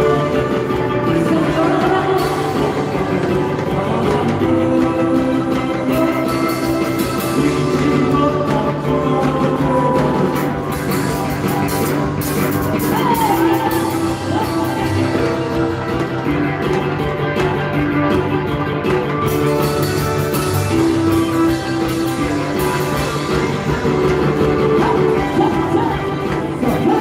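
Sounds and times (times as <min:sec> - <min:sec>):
acoustic guitar: 0:00.0 - 0:27.0
electric bass: 0:00.0 - 0:27.0
live band music: 0:00.0 - 0:27.0.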